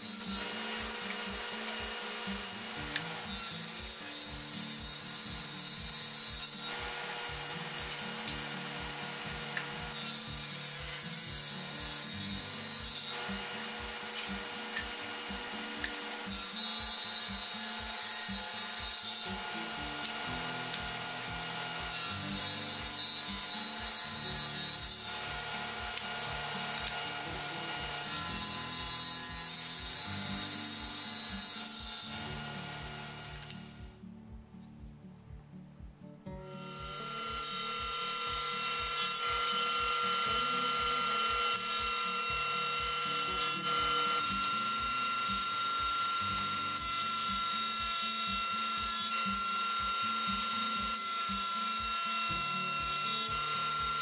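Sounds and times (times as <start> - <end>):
table saw ripping wood: 0.0 - 33.8, 36.5 - 54.0
background music with bass: 32.3 - 37.0.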